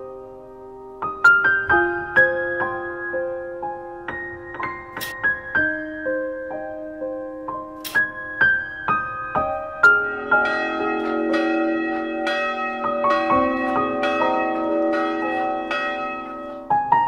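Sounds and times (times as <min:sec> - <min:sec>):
church bells ringing: 0:09.8 - 0:17.0.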